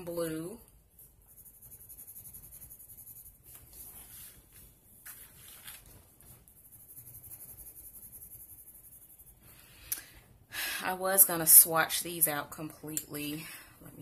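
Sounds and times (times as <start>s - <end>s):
pencil scribbling on paper: 1.0s - 4.6s, 6.2s - 9.6s.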